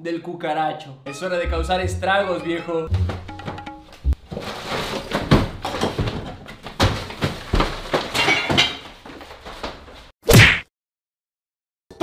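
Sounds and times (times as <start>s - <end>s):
kitchen items knocking and clattering: 2.9s - 10.1s
packets rustling: 4.2s - 8.1s.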